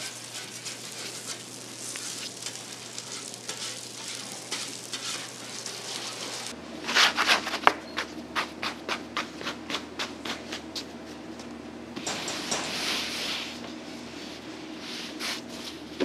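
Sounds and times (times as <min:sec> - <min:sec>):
steady hiss: 0:00.0 - 0:06.6.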